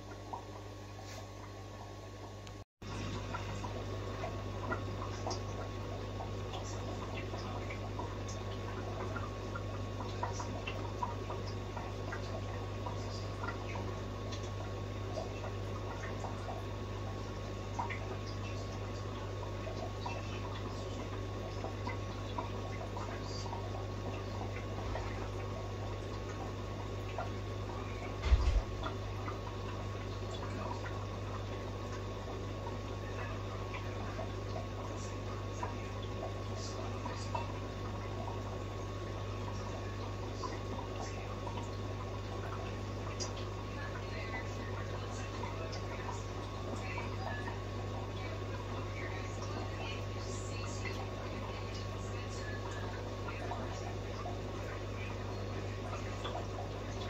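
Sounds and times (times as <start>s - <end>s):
faint trickling water: 0.0s - 57.0s
steady low hum: 0.0s - 57.0s.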